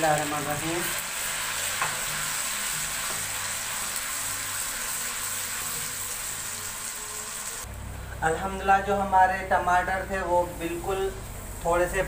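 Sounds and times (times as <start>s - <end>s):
puree sizzling in hot oil: 0.0s - 7.7s.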